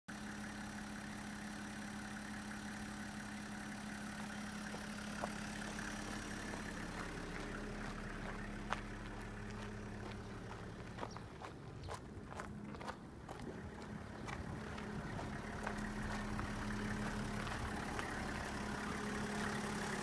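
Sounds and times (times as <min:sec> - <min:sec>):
diesel engine idling: 0:00.1 - 0:20.0
footsteps on gravel: 0:04.6 - 0:19.7.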